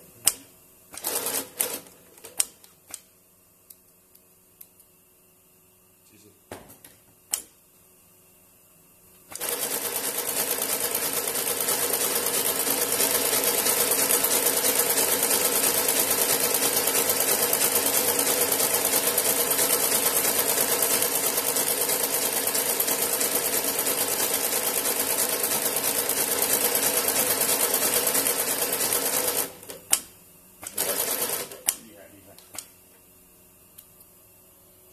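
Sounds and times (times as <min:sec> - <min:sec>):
sewing machine stitching: 0:00.9 - 0:02.0, 0:09.3 - 0:29.9, 0:30.6 - 0:31.8.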